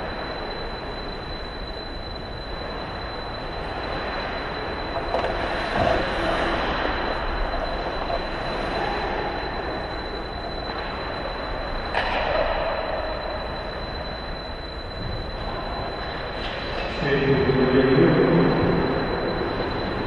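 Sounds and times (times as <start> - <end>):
hockey stick and puck noise: 4.9 - 9.8, 11.8 - 13.7, 16.0 - 18.4.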